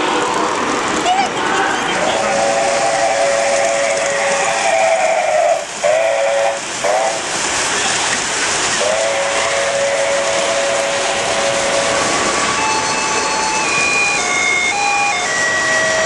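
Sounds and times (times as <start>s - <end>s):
chime steam whistle: 2.0s - 7.2s, 8.8s - 16.0s
model train hissing: 2.1s - 14.2s
high steady tone: 12.4s - 16.0s.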